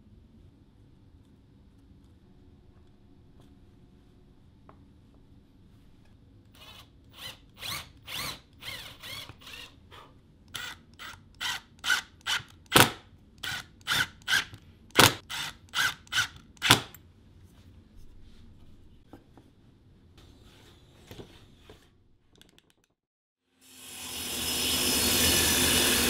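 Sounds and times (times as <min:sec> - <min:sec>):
power driver driving screws: 0:10.6 - 0:17.0.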